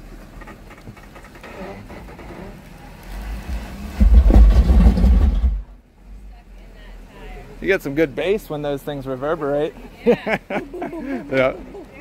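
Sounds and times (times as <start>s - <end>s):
deep booming rumble: 2.0s - 5.9s
car engine running: 2.5s - 5.9s.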